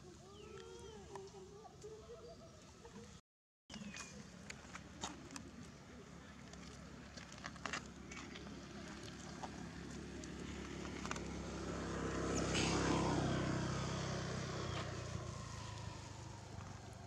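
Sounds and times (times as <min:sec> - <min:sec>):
vehicle driving past: 0:08.5 - 0:17.0.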